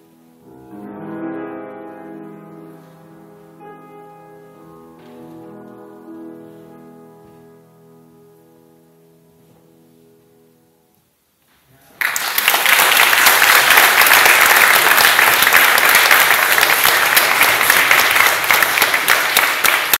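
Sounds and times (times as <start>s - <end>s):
piano chord: 0.0s - 11.1s
audience applause: 11.9s - 20.0s.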